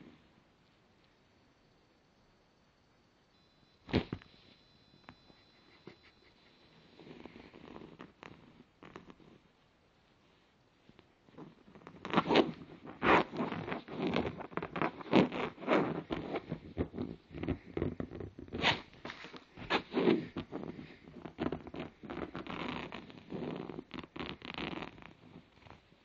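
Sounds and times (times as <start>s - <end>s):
fingers scratching on fabric: 5.0s - 9.5s, 11.3s - 25.9s.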